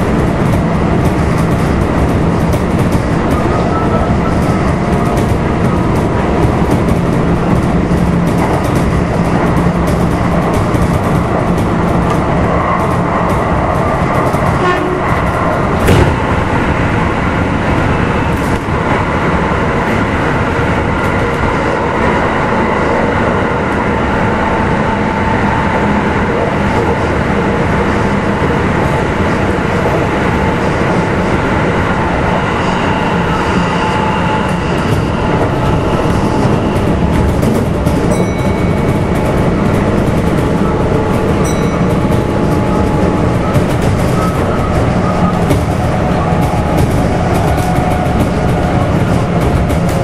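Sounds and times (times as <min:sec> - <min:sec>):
held train tones: 0:00.0 - 0:50.0
train wheels rumbling on rail: 0:00.0 - 0:50.0
sharp knock: 0:15.8 - 0:16.3.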